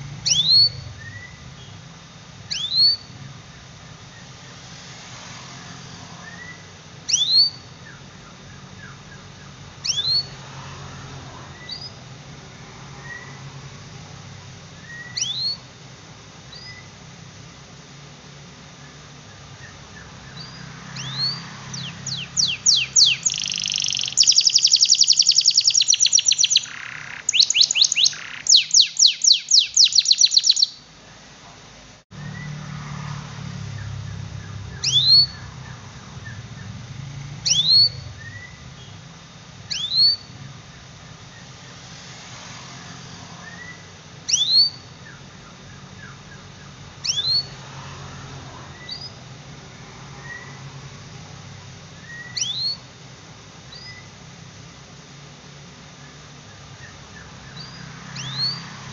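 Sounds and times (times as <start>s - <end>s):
canary singing trills: 0.0s - 4.6s, 5.7s - 10.5s, 11.5s - 12.1s, 12.9s - 13.5s, 14.8s - 15.7s, 16.5s - 17.0s, 18.8s - 30.9s, 33.5s - 41.8s, 43.3s - 47.7s, 48.7s - 49.2s, 50.1s - 50.7s, 51.9s - 52.9s, 53.6s - 54.2s, 56.0s - 58.8s
faint low hum: 0.0s - 41.8s.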